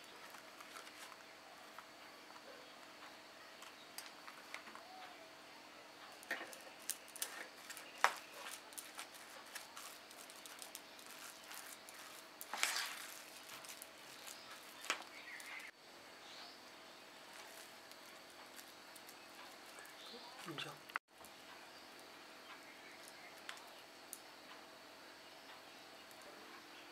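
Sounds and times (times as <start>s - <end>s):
batter scraping: 6.1s - 15.7s, 17.2s - 20.7s.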